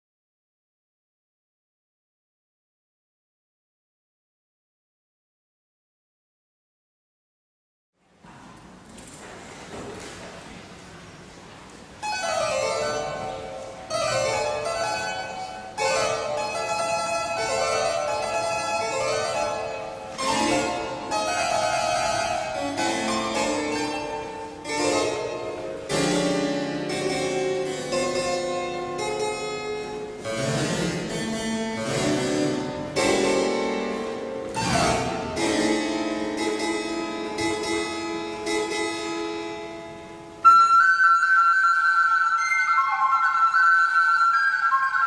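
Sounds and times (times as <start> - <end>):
harpsichord playing: 12.0 - 45.0.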